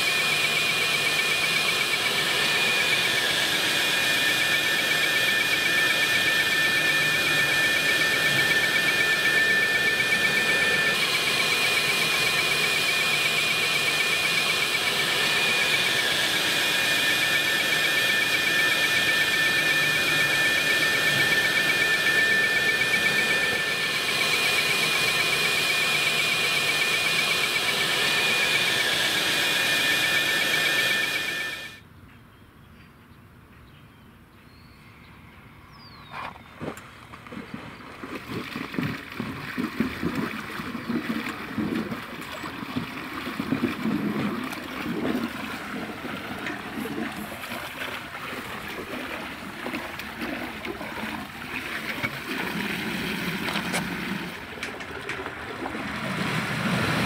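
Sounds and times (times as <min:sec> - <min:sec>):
high whistle: 0:00.0 - 0:31.8.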